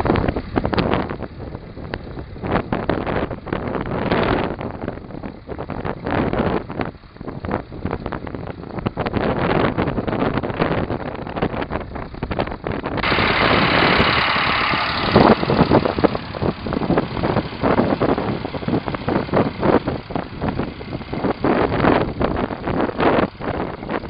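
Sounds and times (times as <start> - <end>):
tractor engine running under load: 0.0 - 24.0
hiss of churning water: 13.0 - 20.1
water and mud splashing: 13.0 - 22.1.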